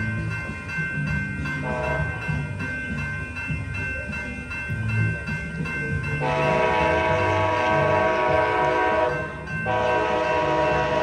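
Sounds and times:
crossing warning bell ringing: 0:00.0 - 0:11.0
locomotive low rumble: 0:00.0 - 0:11.0
train horn blast: 0:01.6 - 0:02.0, 0:06.2 - 0:11.0.

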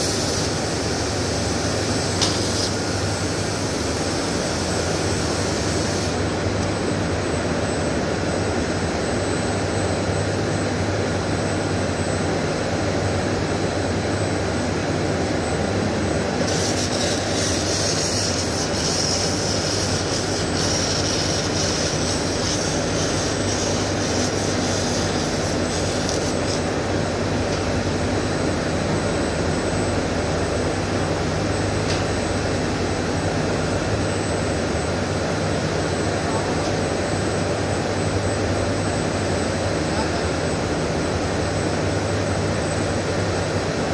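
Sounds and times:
welding arc crackling hiss: 0:00.0 - 0:06.2, 0:16.4 - 0:26.9
machinery humming: 0:00.0 - 0:43.9.

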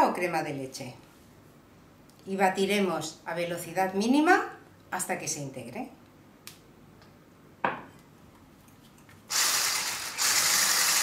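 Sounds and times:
electric hand mixer running: 0:09.3 - 0:11.0.

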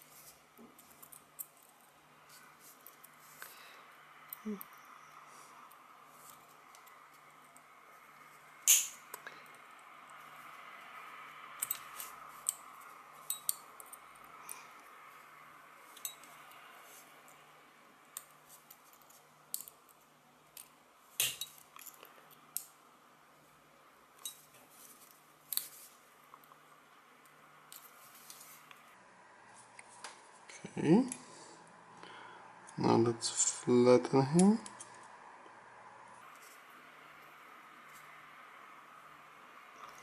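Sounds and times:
pliers clicking on metal wire: 0:08.7 - 0:09.6, 0:11.6 - 0:14.6, 0:18.1 - 0:22.8.

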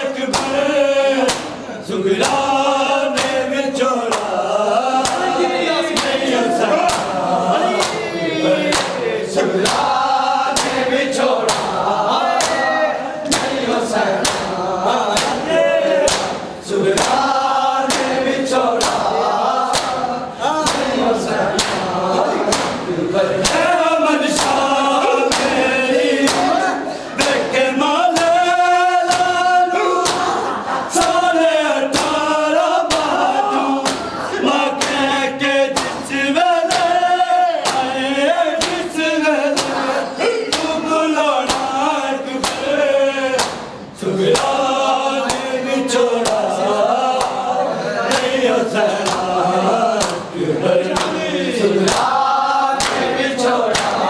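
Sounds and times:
men chanting a lament: 0:00.0 - 0:54.0
hands slapping chests: 0:00.3 - 0:00.6, 0:01.2 - 0:01.6, 0:02.2 - 0:03.4, 0:04.1 - 0:04.4, 0:05.0 - 0:08.1, 0:08.7 - 0:09.0, 0:09.6 - 0:19.1, 0:19.7 - 0:23.7, 0:24.3 - 0:26.6, 0:29.0 - 0:30.4, 0:31.9 - 0:32.3, 0:32.9 - 0:33.1, 0:33.8 - 0:34.2, 0:34.8 - 0:35.1, 0:35.7 - 0:36.1, 0:36.7 - 0:37.0, 0:37.6 - 0:38.0, 0:38.6 - 0:38.9, 0:39.5 - 0:39.9, 0:40.5 - 0:40.8, 0:41.5 - 0:41.8, 0:42.4 - 0:42.7, 0:43.4 - 0:43.7, 0:44.4 - 0:44.6, 0:45.2 - 0:45.5, 0:47.1 - 0:47.4, 0:48.1 - 0:48.4, 0:49.0 - 0:49.4, 0:50.0 - 0:50.3, 0:50.9 - 0:51.2, 0:51.9 - 0:52.2, 0:52.8 - 0:53.1, 0:53.7 - 0:54.0.

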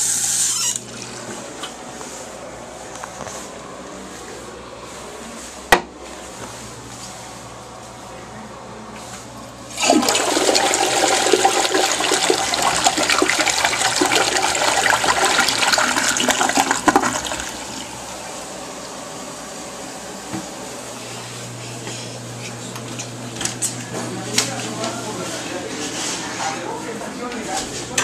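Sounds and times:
toilet flushing: 0:00.0 - 0:01.4, 0:09.7 - 0:19.1.

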